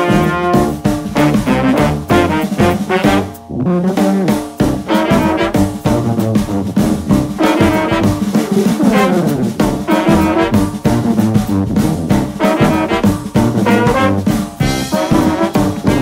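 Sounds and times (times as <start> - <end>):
jazzy brass music: 0.0 - 16.0.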